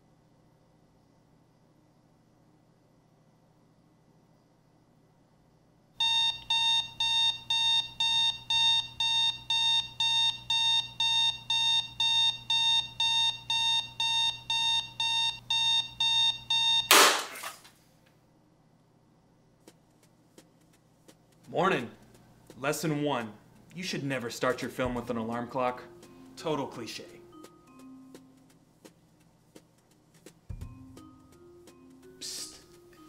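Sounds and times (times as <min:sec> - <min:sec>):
alarm clock beeping: 0:06.0 - 0:16.9
bat smashing clock crash: 0:16.9 - 0:17.6.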